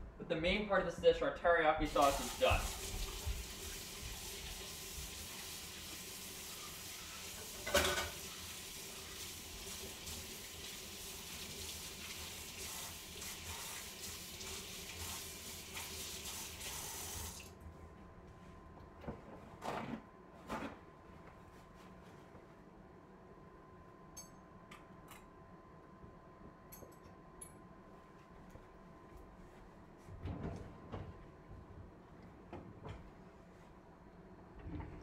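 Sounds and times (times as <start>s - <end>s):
faucet running into metal sink: 1.9s - 17.5s.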